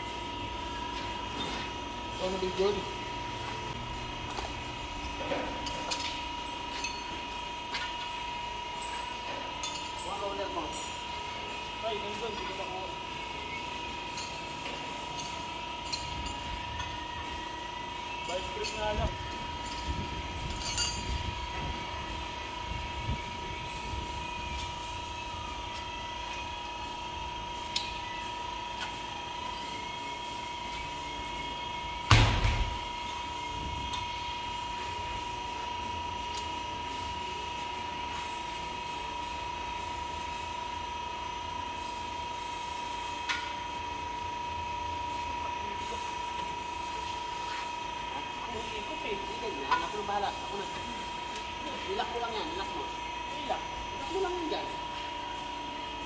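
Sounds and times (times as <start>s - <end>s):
high-pitched hum: 0.0s - 56.0s.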